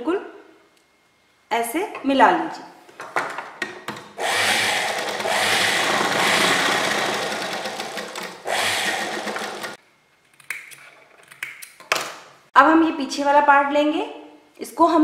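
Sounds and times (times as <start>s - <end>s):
sewing machine stitching: 4.2s - 9.8s.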